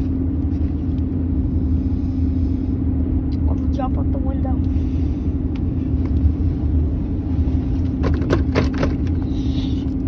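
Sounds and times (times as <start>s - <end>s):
car cabin rumble and hum: 0.0s - 10.0s.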